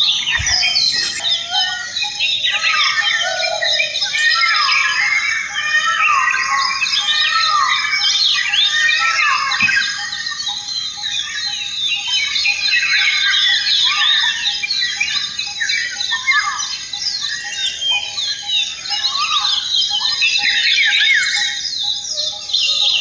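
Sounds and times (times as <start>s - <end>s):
birds chirping and twittering: 0.0s - 23.0s.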